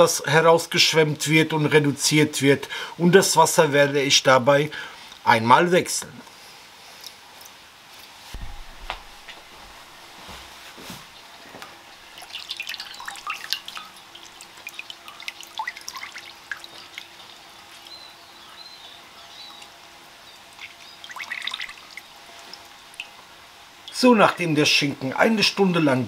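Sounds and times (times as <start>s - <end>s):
water dripping into a basin: 11.9s - 24.4s.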